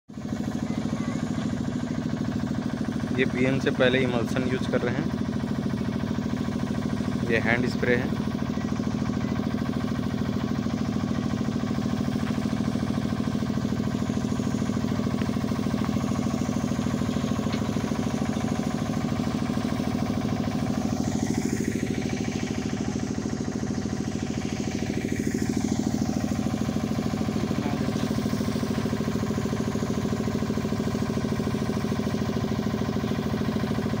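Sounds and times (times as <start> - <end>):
diesel engine running steadily: 0.1 - 34.0.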